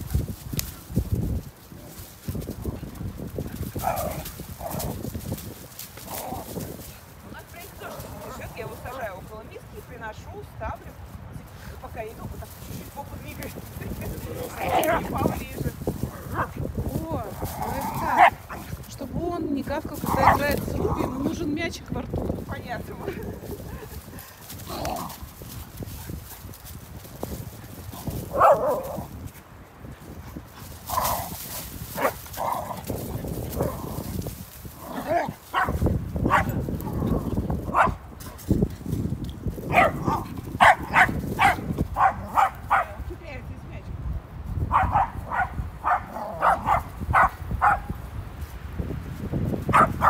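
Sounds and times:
dogs barking: 18.1 - 18.7, 20.1 - 20.6, 28.3 - 28.9, 35.5 - 36.6, 37.7 - 38.0, 39.7 - 43.0, 44.7 - 47.9, 49.7 - 50.0.

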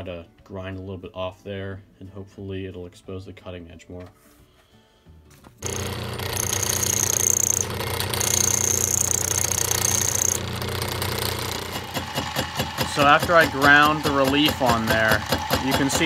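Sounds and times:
grinding wheel motor hum: 5.6 - 16.0
high-pitched grinding screech: 5.6 - 16.0.

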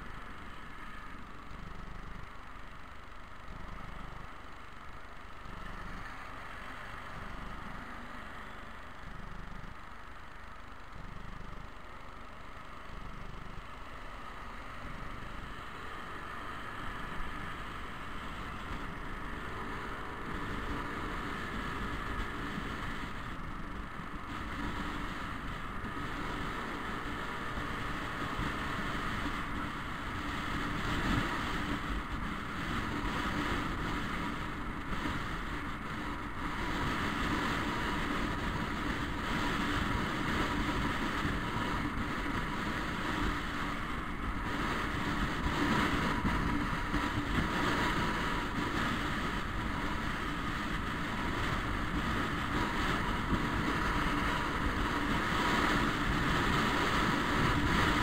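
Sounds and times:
road noise: 0.0 - 58.0
scooter engine: 0.0 - 58.0
wind rush on microphone: 14.9 - 58.0.

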